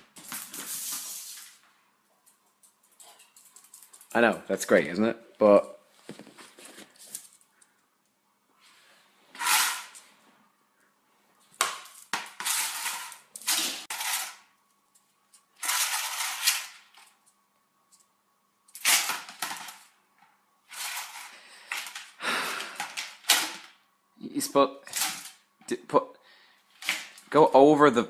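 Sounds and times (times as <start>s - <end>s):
plastic basket scraping on tile: 9.3s - 10.0s, 12.2s - 14.4s, 15.6s - 16.7s.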